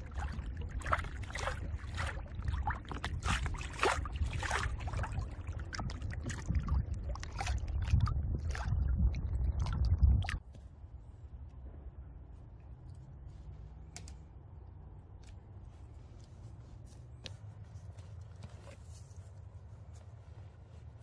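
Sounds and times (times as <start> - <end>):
water splashing against canoe hull: 0.0 - 10.4
steady low rumble: 0.0 - 13.8.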